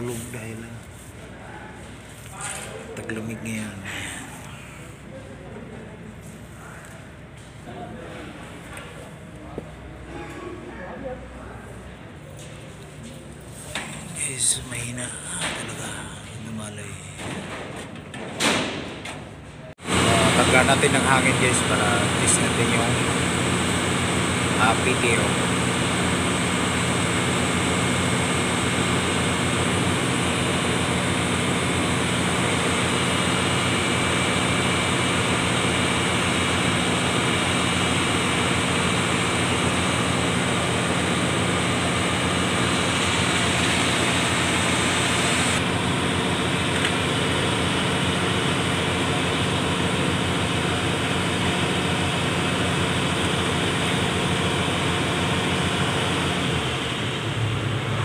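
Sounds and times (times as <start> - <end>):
diesel engine idling: 19.8 - 58.0.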